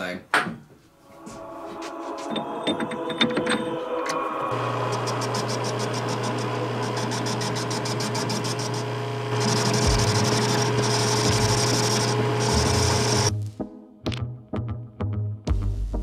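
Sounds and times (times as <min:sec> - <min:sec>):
lathe motor hum: 0:01.8 - 0:13.3.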